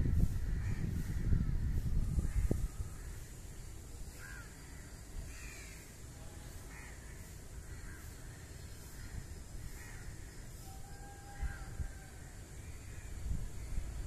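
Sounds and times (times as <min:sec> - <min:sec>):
low outdoor background noise: 0:00.0 - 0:14.0
crow cawing: 0:04.2 - 0:06.0, 0:06.7 - 0:13.1.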